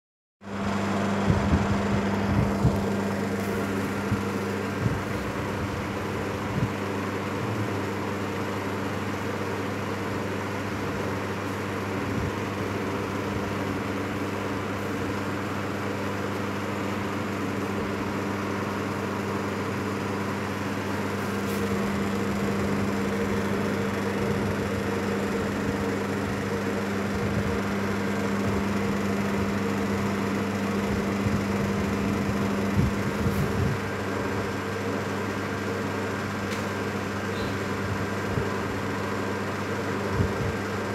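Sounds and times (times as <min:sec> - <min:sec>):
machine hum: 0:00.4 - 0:40.9.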